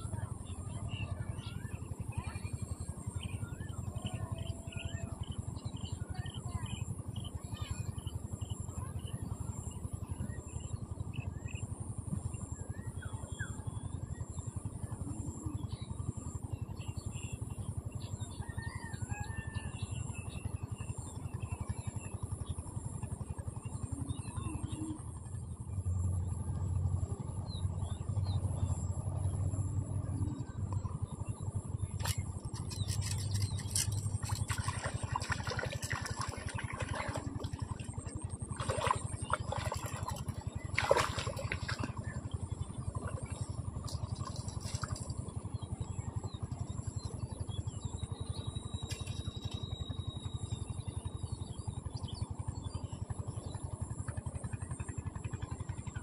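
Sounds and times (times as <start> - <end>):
steady outdoor noise: 0.0 - 56.0
birds chirping: 27.3 - 50.6.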